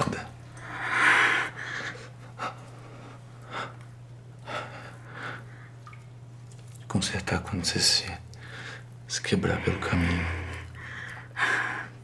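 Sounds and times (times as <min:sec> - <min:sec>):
steady low hum: 0:00.0 - 0:12.0
close-up breathing: 0:08.4 - 0:08.9, 0:09.6 - 0:12.0.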